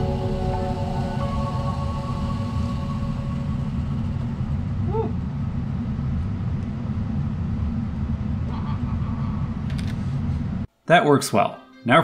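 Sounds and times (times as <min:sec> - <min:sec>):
fog machine rumbling: 0:00.0 - 0:07.7.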